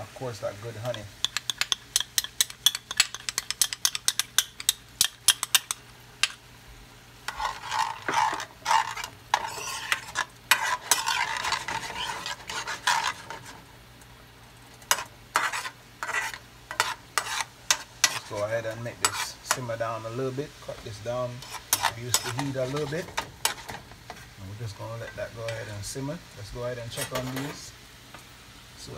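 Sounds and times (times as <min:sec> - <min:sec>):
light sizzle: 0:00.0 - 0:28.9
spoon clicking and scraping pan: 0:00.8 - 0:06.4, 0:07.3 - 0:13.5, 0:14.8 - 0:18.4, 0:19.0 - 0:19.7, 0:21.4 - 0:23.8.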